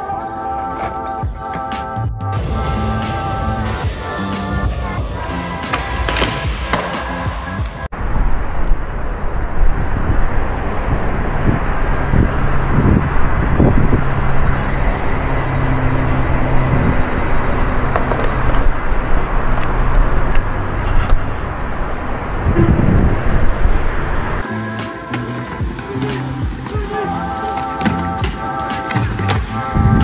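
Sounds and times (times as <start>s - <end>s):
distant highway traffic roar: 2.4s - 24.4s.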